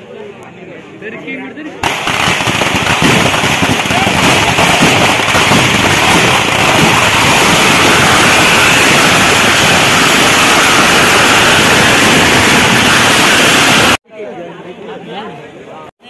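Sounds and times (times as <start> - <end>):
fireworks crackling: 1.8 - 14.0.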